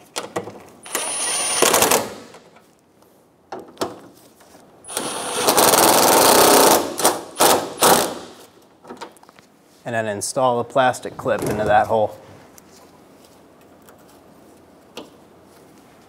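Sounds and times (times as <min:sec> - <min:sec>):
impact driver whining and hammering: 0:00.8 - 0:02.5, 0:04.9 - 0:08.5.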